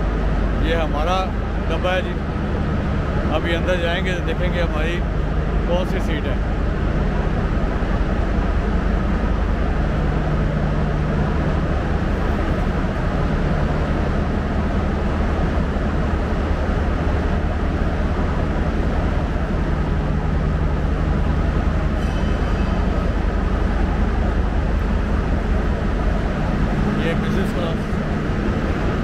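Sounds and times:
diesel generator drone: 0:00.0 - 0:29.0.

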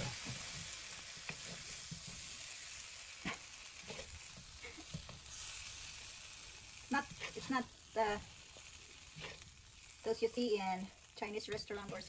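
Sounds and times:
spatula scraping and knocking pan: 0:00.0 - 0:02.3
chicken sizzling in a frying pan: 0:00.0 - 0:12.0.

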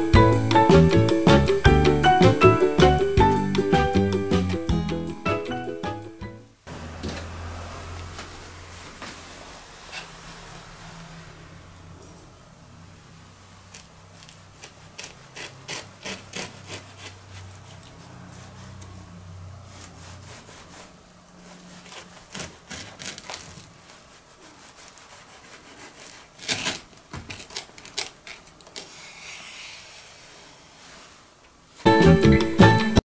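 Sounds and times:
knife sawing through toast: 0:13.7 - 0:18.9, 0:19.7 - 0:26.8.

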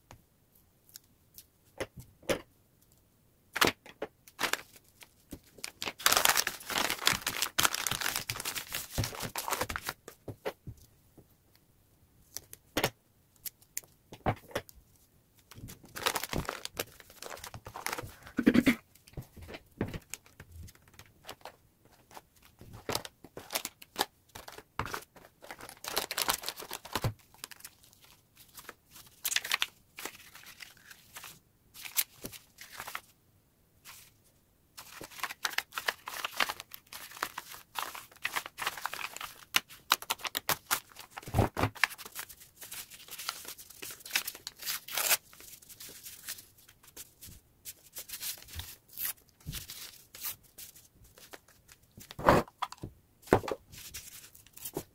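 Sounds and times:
paper crinkling and rustling: 0:04.4 - 0:10.2, 0:15.5 - 0:18.4, 0:19.0 - 0:33.1, 0:34.8 - 0:54.9.

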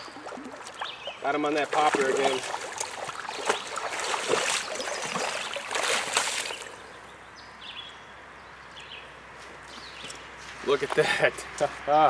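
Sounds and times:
fish splashing in water: 0:00.0 - 0:06.8.

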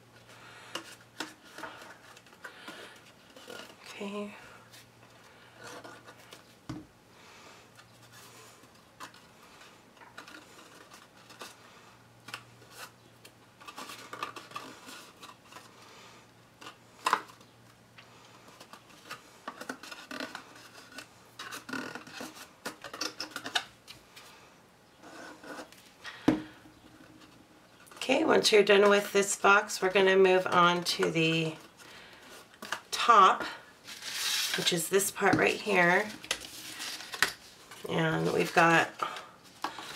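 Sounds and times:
paper rustling and scraping: 0:33.8 - 0:39.9.

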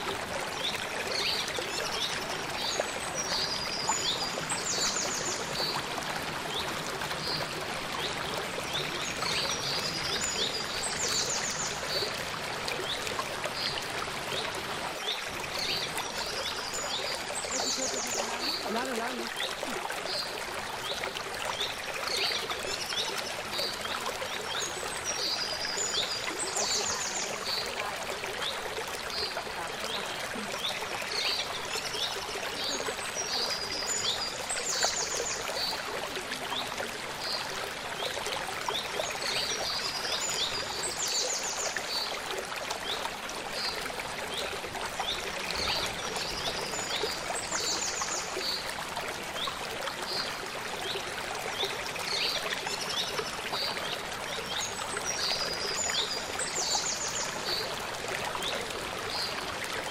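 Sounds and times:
stream flowing over rocks: 0:00.0 - 0:59.9
small birds chirping and trilling: 0:12.8 - 0:35.8.

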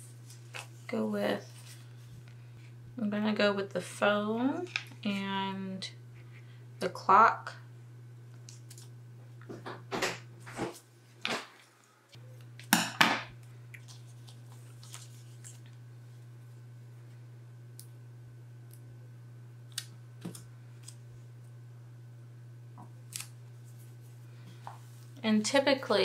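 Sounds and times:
steady low hum: 0:00.0 - 0:26.0
sticker peeling rustles: 0:13.8 - 0:15.8.

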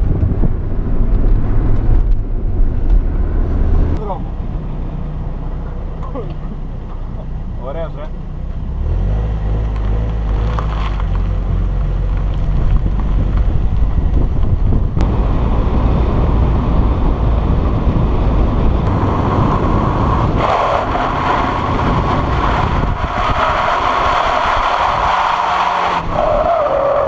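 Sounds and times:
wind buffeting microphone: 0:00.0 - 0:04.0, 0:10.9 - 0:27.0
high wavering tyre squeal: 0:19.3 - 0:27.0.

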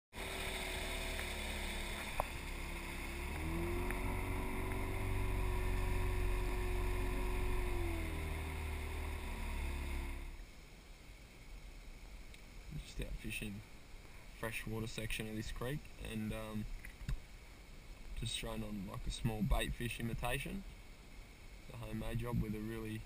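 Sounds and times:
outboard motor running: 0:00.1 - 0:10.4.

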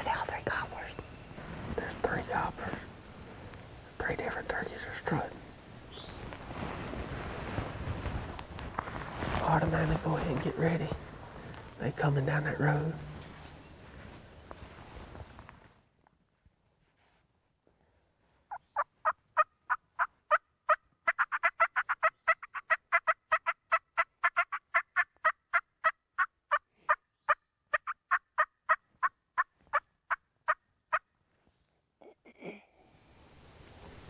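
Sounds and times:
brief rustle: 0:13.2 - 0:17.3
turkey yelping: 0:18.5 - 0:30.2.

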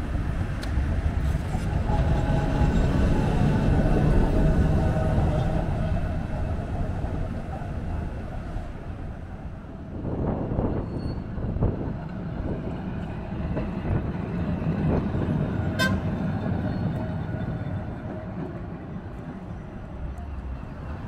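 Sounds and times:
wind buffeting microphone: 0:00.0 - 0:20.0
tram rumbling past: 0:00.0 - 0:21.0
tram warning toot: 0:01.2 - 0:09.3, 0:13.5 - 0:21.0.

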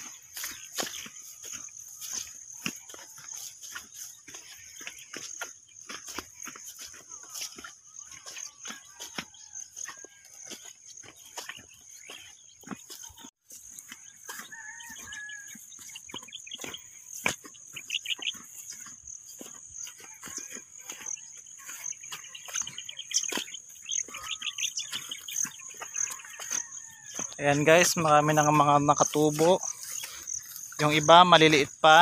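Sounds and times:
bird calls: 0:00.0 - 0:32.0
insects chirring: 0:10.8 - 0:32.0.

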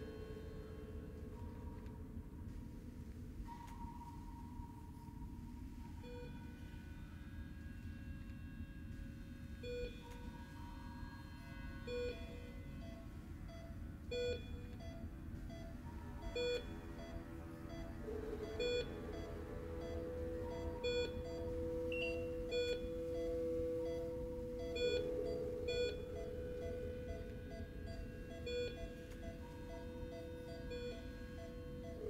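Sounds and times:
low steady hum: 0:00.0 - 0:32.0
patient monitor beeping: 0:11.8 - 0:32.0.

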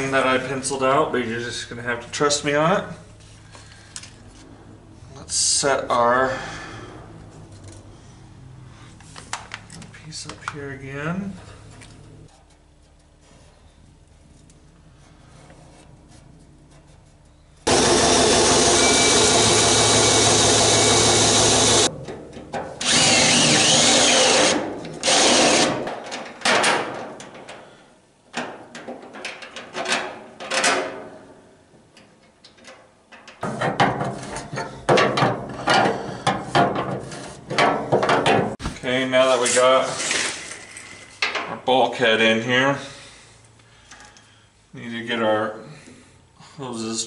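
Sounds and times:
power tool cutting sheet metal: 0:17.7 - 0:21.9, 0:22.8 - 0:25.8.

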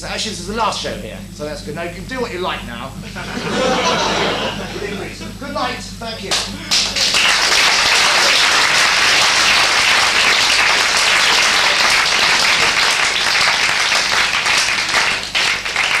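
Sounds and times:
audience applauding: 0:06.3 - 0:16.0.

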